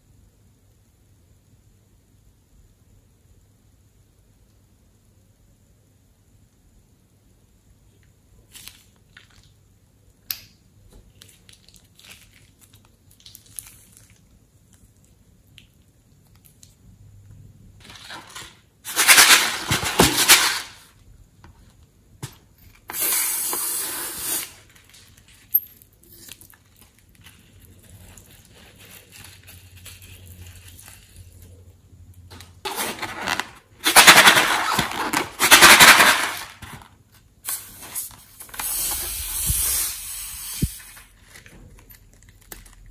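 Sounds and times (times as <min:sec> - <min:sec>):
balloon air rushing hiss: 0:22.9 - 0:24.6, 0:37.4 - 0:41.1.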